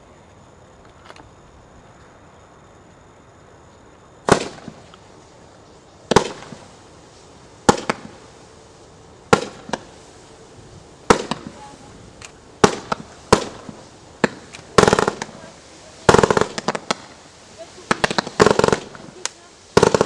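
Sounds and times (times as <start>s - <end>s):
firework crackles: 0.0s - 20.0s
firework bangs: 4.2s - 5.2s, 6.0s - 20.0s.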